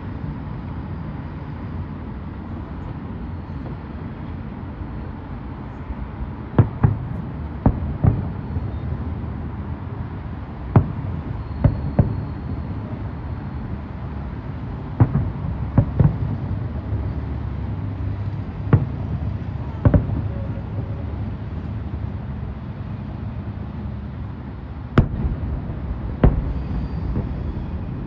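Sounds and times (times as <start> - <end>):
firework shells bursting: 6.6 - 8.8, 25.0 - 28.0
low rumble: 25.0 - 28.0.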